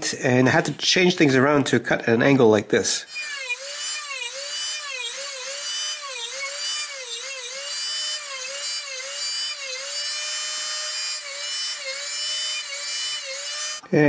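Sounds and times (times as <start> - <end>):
rotary tool grinding metal: 3.1 - 13.9.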